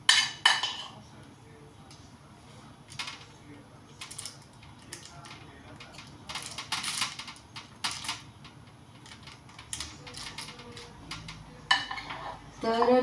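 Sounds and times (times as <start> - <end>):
metal spoons scraping and clicking: 9.0 - 13.0.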